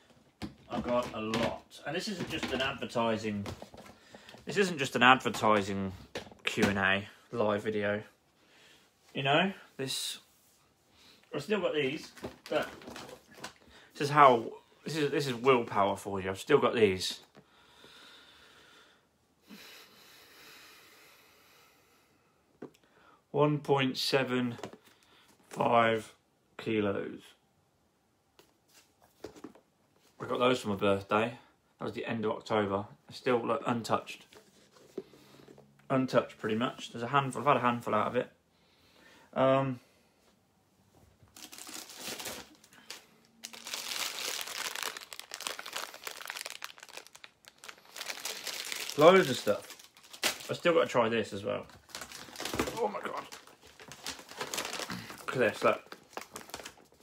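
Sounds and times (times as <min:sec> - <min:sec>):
plastic bags crinkling: 0:11.8 - 0:14.2, 0:41.3 - 0:57.0
faint long breaths: 0:17.4 - 0:23.3, 0:34.9 - 0:35.7, 0:38.5 - 0:40.4.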